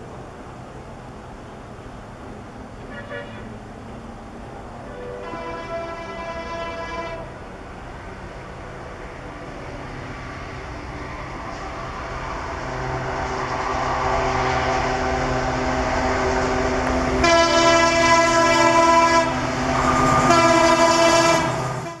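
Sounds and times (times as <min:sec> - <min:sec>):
diesel locomotive engine under load: 0:00.0 - 0:22.0
locomotive horn: 0:04.9 - 0:07.4, 0:17.1 - 0:22.0.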